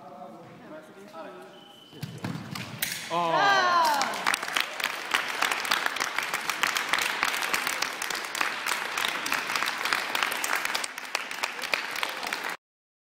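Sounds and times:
spectators applauding: 3.4 - 12.6.

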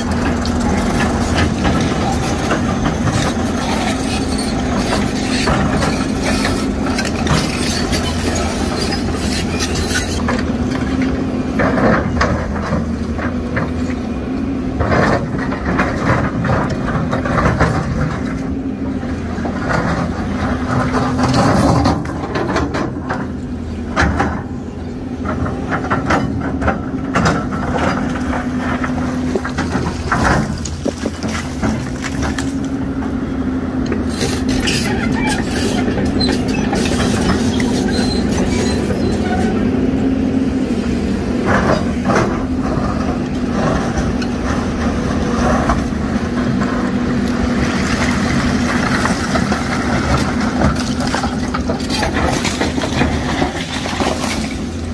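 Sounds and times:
diesel engine droning: 0.0 - 54.9
rock knocking and scraping: 28.8 - 32.6.

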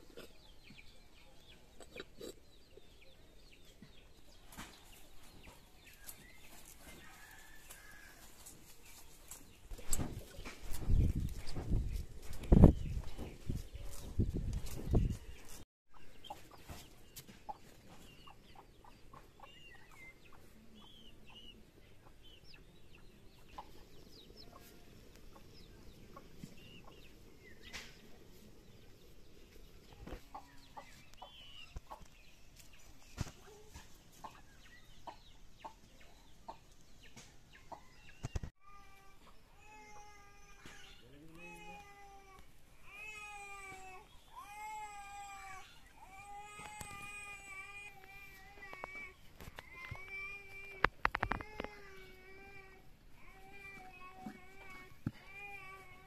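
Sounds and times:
chickens clucking: 0.0 - 41.6
birds chirping: 0.0 - 56.0.

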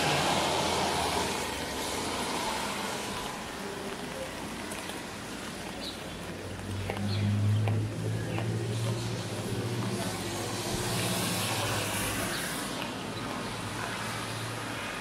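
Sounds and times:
car tyre hiss on wet road: 0.0 - 3.6.

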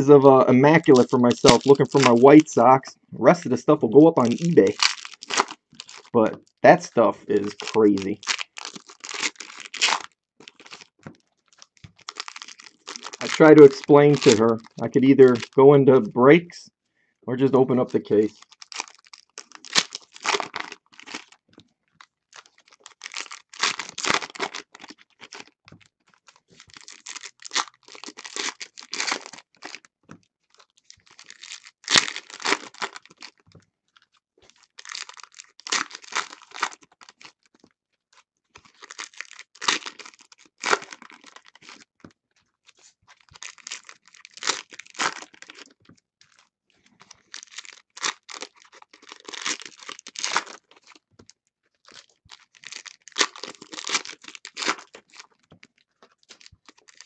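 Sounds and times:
foil wrappers torn and crinkled: 0.0 - 2.5, 3.5 - 6.2, 7.4 - 15.6, 17.8 - 21.4, 22.0 - 33.5, 34.5 - 42.0, 42.6 - 57.0.

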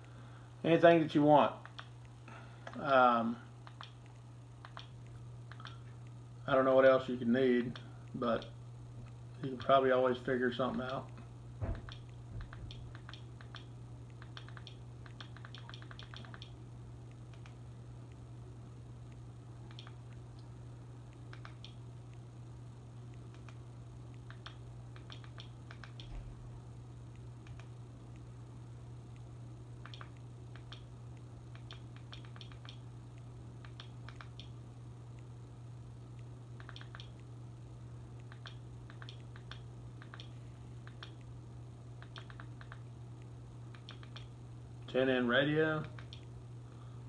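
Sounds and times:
low steady hum: 0.0 - 47.0
remote buttons clicking: 1.6 - 2.0, 3.6 - 6.1, 11.7 - 17.6, 19.1 - 20.5, 21.1 - 22.2, 23.1 - 26.2, 29.8 - 30.9, 31.5 - 34.6, 36.6 - 37.3, 38.2 - 41.3, 42.0 - 42.9, 43.7 - 44.3, 45.8 - 46.3
remote button clicks: 36.6 - 37.2.

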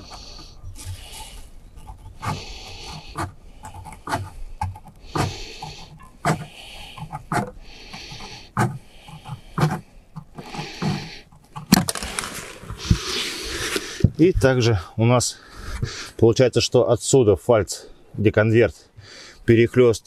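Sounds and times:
person breathing heavily: 0.0 - 1.6, 2.2 - 11.3, 12.2 - 14.2, 15.3 - 16.2, 18.9 - 19.5.

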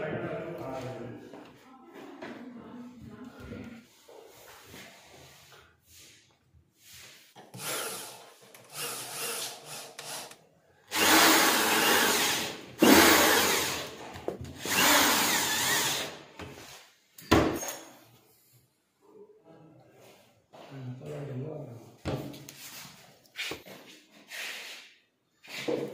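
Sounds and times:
cordless drill driving screws: 7.5 - 14.0, 14.6 - 16.2.

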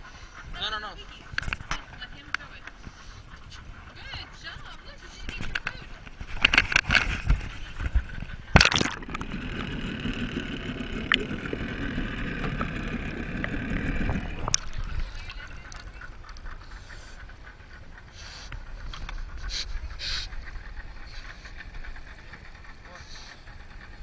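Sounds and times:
muffled underwater sound: 3.8 - 18.1
water splashing: 8.5 - 16.5
loud splash: 8.6 - 9.2.

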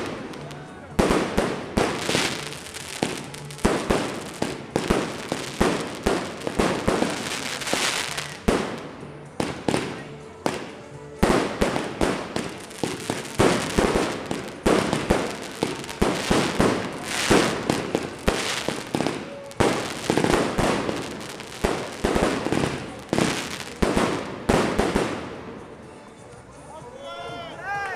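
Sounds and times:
fireworks shells bursting: 0.0 - 26.0
fireworks crackling: 0.0 - 26.7.

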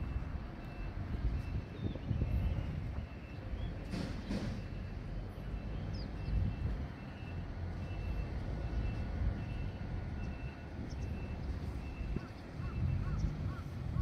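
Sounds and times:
truck reversing alarm beeping: 0.0 - 14.0
bird calling: 11.8 - 14.0.

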